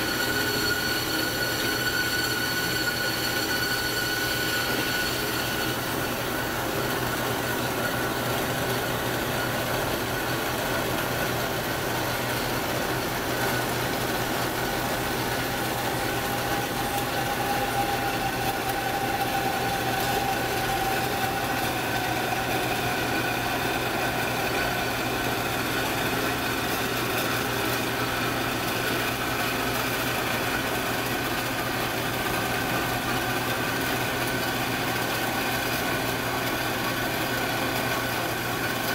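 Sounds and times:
whining tones: 0.0 - 10.6, 13.3 - 27.2
band saw cutting metal: 0.0 - 32.0.

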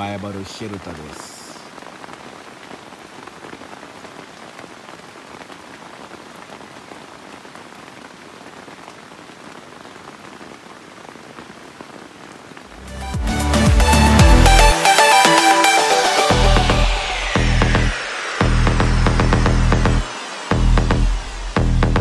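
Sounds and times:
rain pattering on leaves: 0.0 - 12.8.

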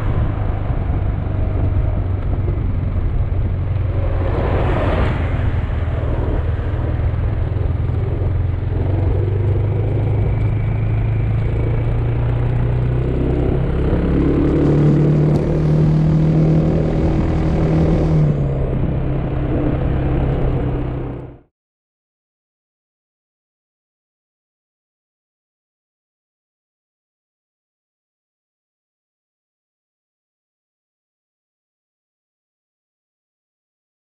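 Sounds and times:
wind and road noise: 0.0 - 21.5.

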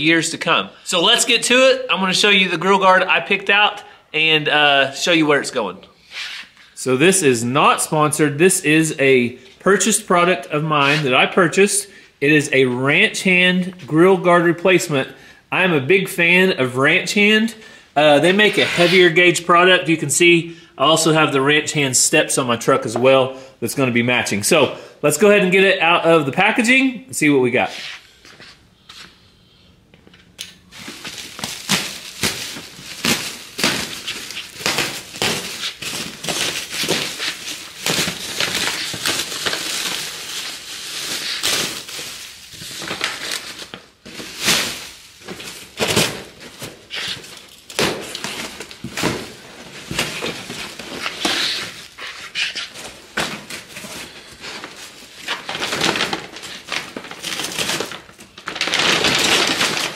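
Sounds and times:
plastic and paper crinkling and tearing: 30.7 - 59.9.

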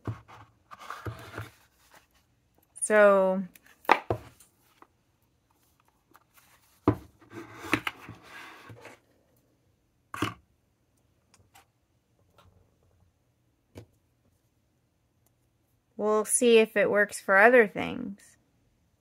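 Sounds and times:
paperboard rustling and scraping: 0.0 - 2.3, 6.1 - 9.1.

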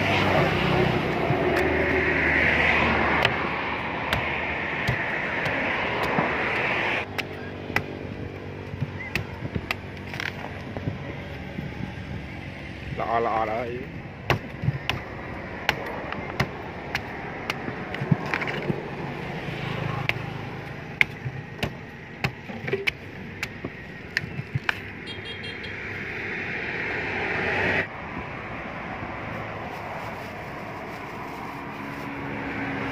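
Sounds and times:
knife chopping fruit husks: 0.0 - 11.1, 14.0 - 25.0.

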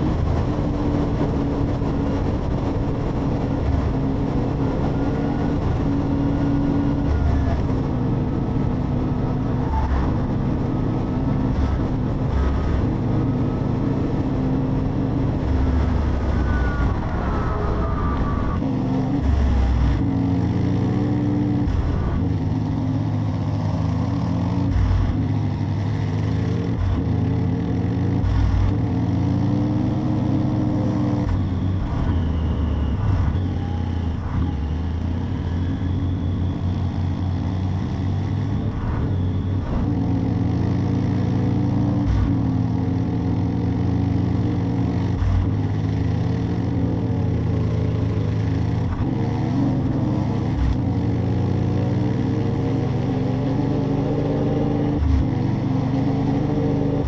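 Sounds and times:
wind noise: 0.0 - 20.2
motorcycle engine revving: 0.0 - 57.0
road noise: 0.0 - 57.0.

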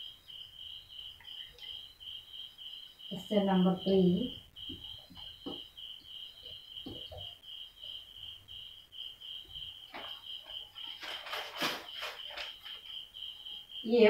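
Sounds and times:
paper rustles and scrapes: 9.9 - 12.9.

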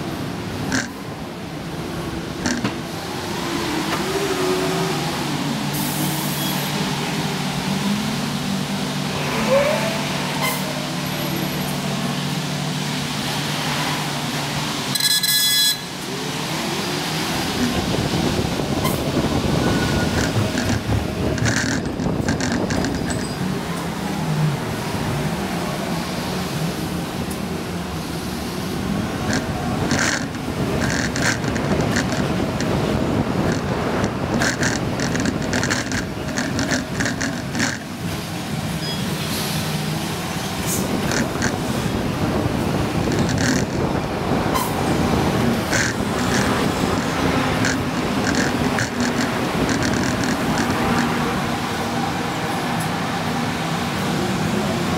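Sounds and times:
vehicle running and road noise: 0.0 - 54.9
rapid rattling clicks: 33.5 - 37.8, 45.7 - 51.1.

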